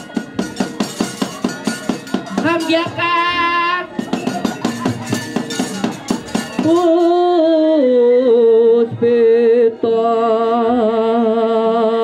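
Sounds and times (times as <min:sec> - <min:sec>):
fast percussive strikes: 0:00.0 - 0:07.5.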